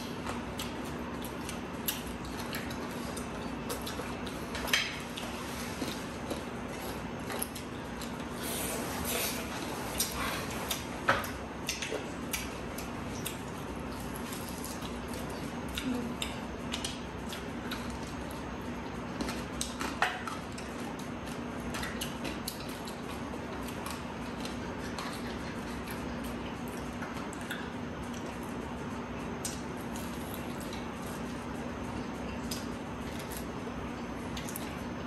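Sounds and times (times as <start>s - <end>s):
steady low hum: 0.0s - 35.0s.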